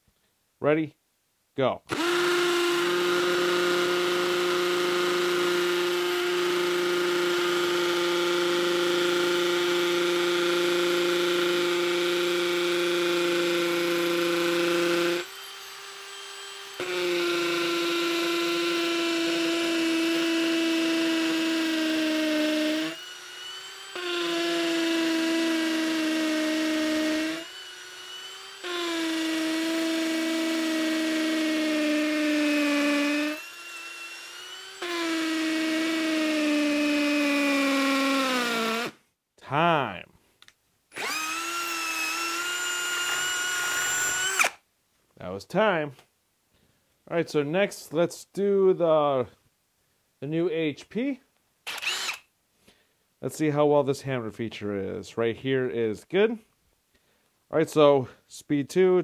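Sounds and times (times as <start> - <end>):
hammer drill boring into concrete: 1.9 - 39.0, 40.9 - 44.6, 51.6 - 52.3.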